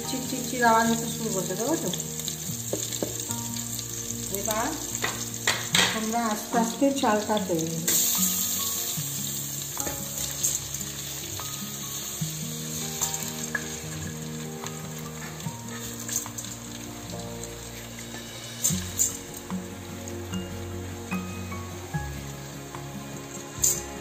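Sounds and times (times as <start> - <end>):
rice sizzling in hot fat: 0.0 - 24.0
soft background music: 0.0 - 24.0
grains ticking and spattering: 7.2 - 20.2.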